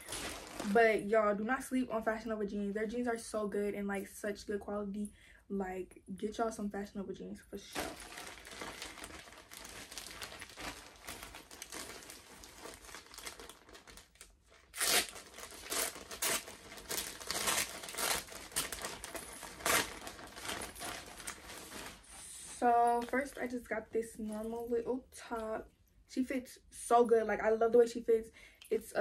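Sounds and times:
plastic bag crinkling: 0.0s - 1.0s, 7.7s - 23.4s.

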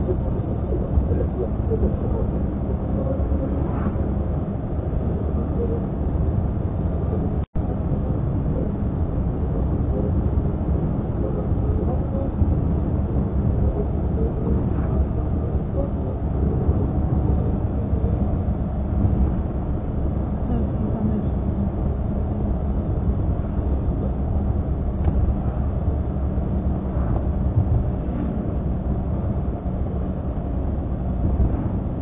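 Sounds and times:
car engine and tyre road noise: 0.0s - 32.0s
low hum: 0.0s - 32.0s.

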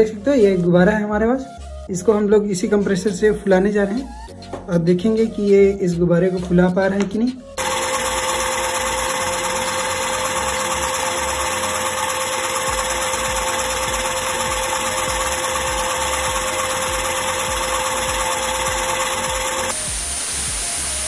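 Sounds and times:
motor whine: 7.6s - 19.8s.

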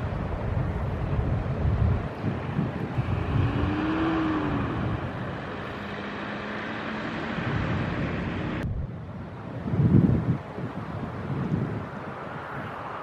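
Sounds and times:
engine drone: 0.0s - 9.8s
wind on microphone: 0.0s - 13.0s.

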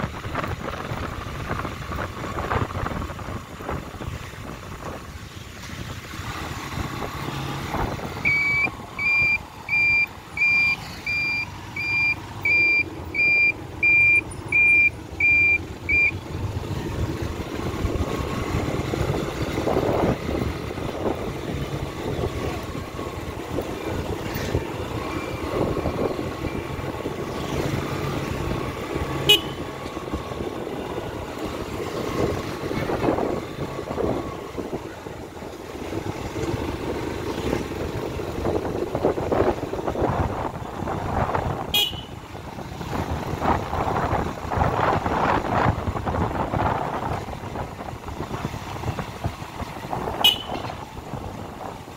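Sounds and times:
vehicle engine low rumble: 0.0s - 51.9s
electronic warning beeper: 8.2s - 16.2s.

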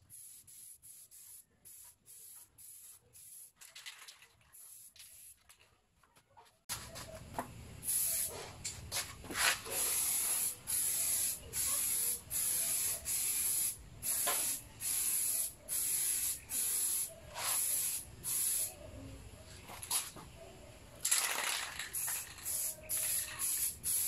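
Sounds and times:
aerosol spray can hissing: 9.6s - 18.7s, 22.0s - 24.0s.

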